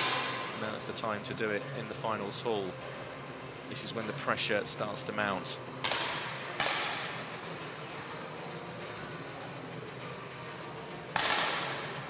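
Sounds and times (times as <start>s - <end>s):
indoor hall hum: 0.0s - 12.0s
air rifle shot: 11.2s - 11.9s.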